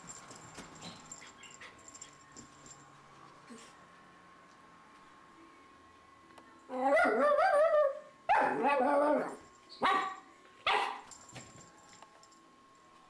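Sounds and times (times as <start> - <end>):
dog barking: 9.8 - 11.1.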